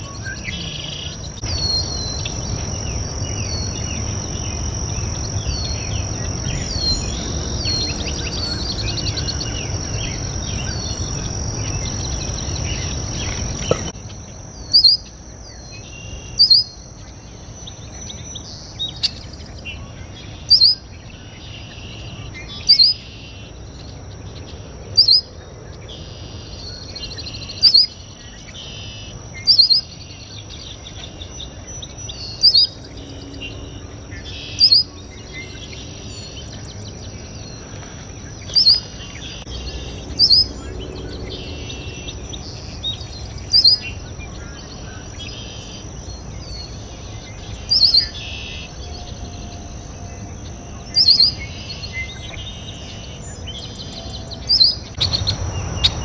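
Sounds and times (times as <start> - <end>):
blackbird rising call: 54.5 - 56.0
steady rushing noise: 54.9 - 56.0.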